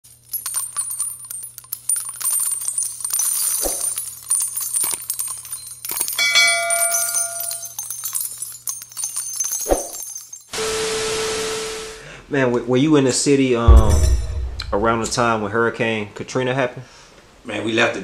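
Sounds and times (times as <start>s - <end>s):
ringing multi-tone chime: 5.4s - 10.5s
thud: 13.7s - 15.4s.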